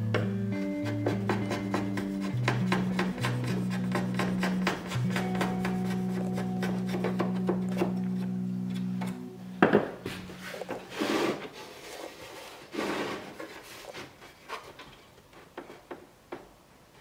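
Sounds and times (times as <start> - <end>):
background music: 0.0 - 10.9
wood scraping against wood: 0.7 - 16.0.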